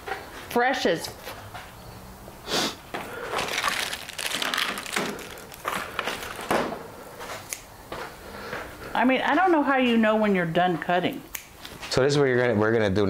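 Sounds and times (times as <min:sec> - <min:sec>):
comb and handling rustles: 0:03.2 - 0:07.4.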